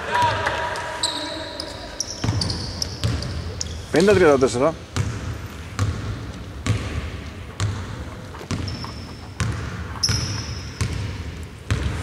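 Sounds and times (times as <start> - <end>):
shoe squeaks: 0.9 - 4.2, 8.5 - 9.4, 10.0 - 10.8
basketball bouncing on court: 2.1 - 4.3, 4.9 - 12.0.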